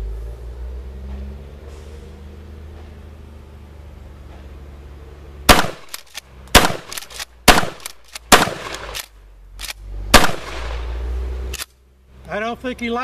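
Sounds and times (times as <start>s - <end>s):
shotgun blasts: 5.5s - 9.1s, 10.1s - 11.0s
shotgun slide racking: 6.8s - 9.8s.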